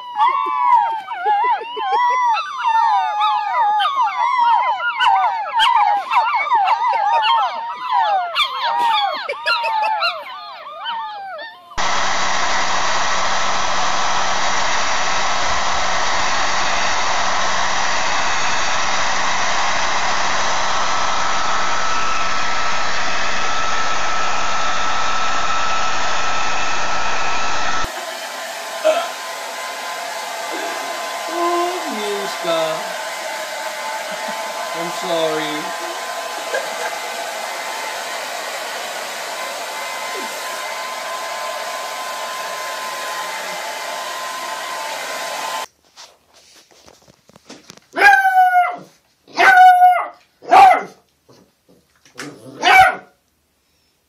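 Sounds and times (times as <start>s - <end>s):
hair dryer blowing: 11.8s - 45.7s.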